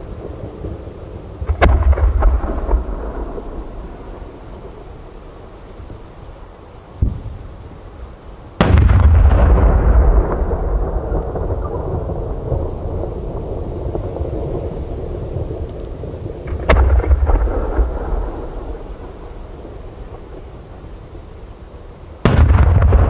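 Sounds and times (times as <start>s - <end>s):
fireworks bangs: 0.2s - 5.3s, 8.6s - 14.8s, 16.4s - 20.9s, 22.2s - 23.0s.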